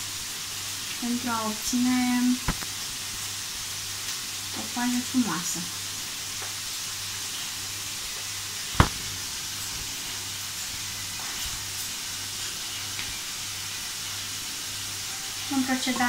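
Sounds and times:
steady hiss and low hum: 0.0 - 16.0
sharp knock: 8.8 - 9.1.

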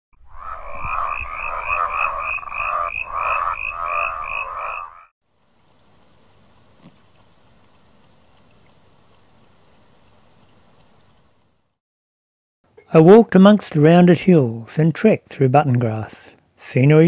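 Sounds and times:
animal croaking pulses: 0.2 - 5.1
faint steady hiss: 5.3 - 11.8.

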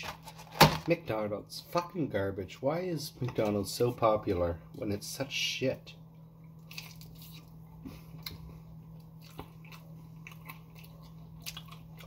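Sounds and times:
faint low hum: 0.0 - 12.0
person chewing: 6.4 - 12.0.

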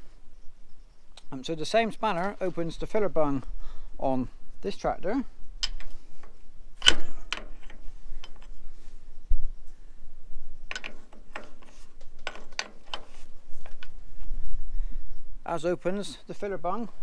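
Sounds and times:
metal spanner clicks and clinks: 10.7 - 11.5.

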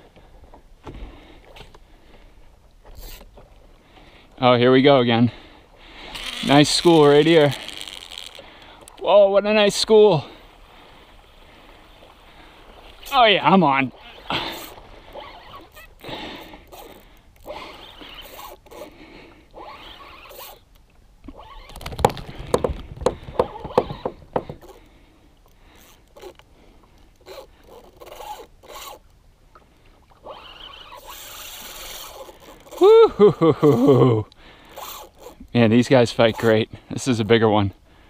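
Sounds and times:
fishing reel drag buzzing: 3.0 - 3.3, 6.0 - 9.0, 13.9 - 20.7, 25.8 - 26.4, 27.2 - 29.1, 30.2 - 32.8, 34.6 - 35.5, 36.1 - 36.6
reel clicking: 6.1 - 9.1, 16.6 - 22.3, 25.8 - 29.2, 30.2 - 32.8, 34.6 - 36.6.

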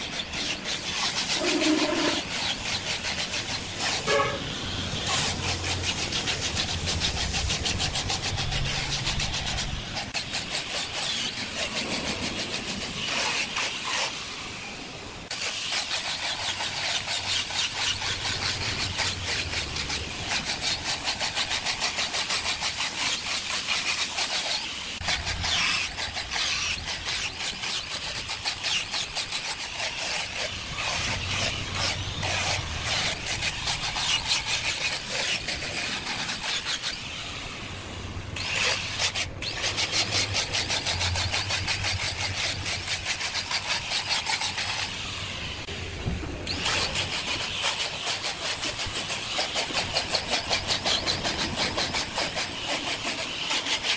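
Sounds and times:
disc rasping on wood: 0.0 - 14.2, 15.3 - 37.7, 38.3 - 45.7, 46.5 - 53.9
angle grinder motor whine: 1.2 - 2.4.

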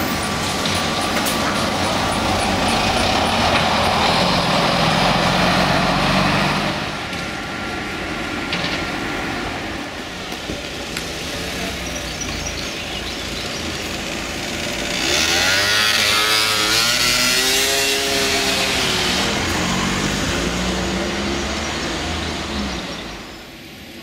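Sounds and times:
street traffic: 0.0 - 24.0
motor scooter passing by: 13.0 - 22.9.

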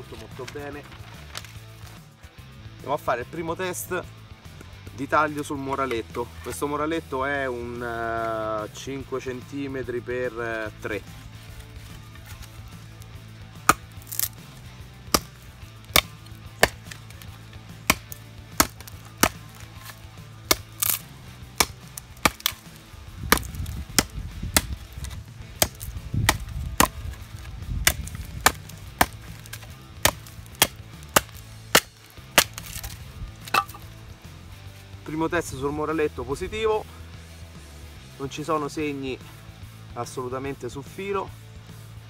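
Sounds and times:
knife chopping wood: 11.4 - 33.9.

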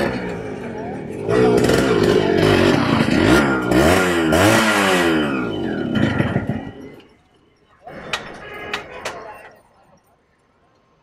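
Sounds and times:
motorcycle engine revving: 0.0 - 7.1.

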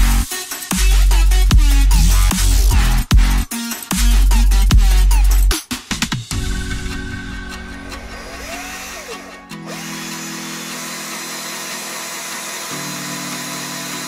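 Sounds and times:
electronic background music: 0.0 - 14.0
power drill boring plastic: 8.1 - 14.0.

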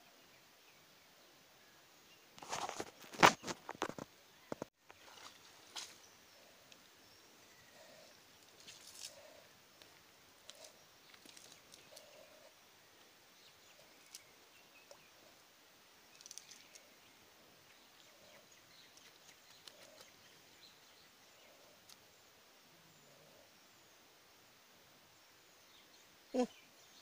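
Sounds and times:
faint ticks and crackles: 2.3 - 23.9.

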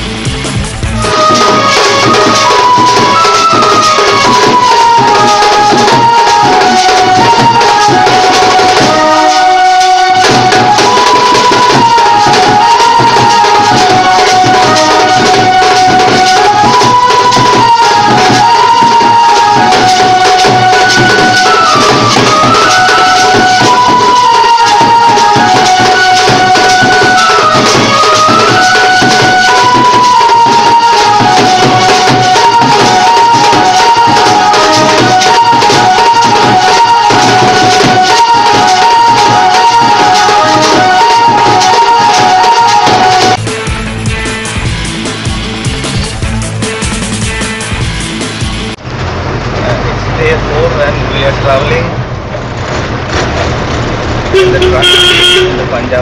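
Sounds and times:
high stepping melody: 0.0 - 48.8, 54.3 - 56.0
bass drums beating: 0.0 - 49.6, 51.8 - 56.0
jingling metal hand percussion: 1.0 - 43.4.

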